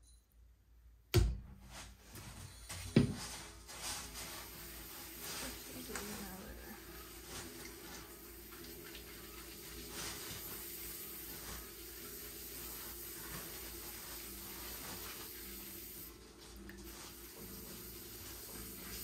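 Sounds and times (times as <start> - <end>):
wet clay being worked: 3.2 - 15.7
pottery wheel humming: 3.2 - 19.0.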